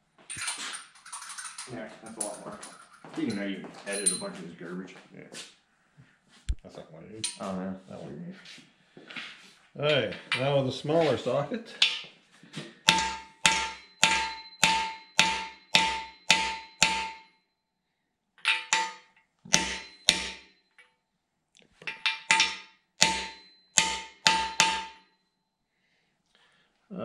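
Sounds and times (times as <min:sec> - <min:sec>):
hammer striking metal socket: 0:12.9 - 0:17.2, 0:18.4 - 0:20.9, 0:21.8 - 0:25.0.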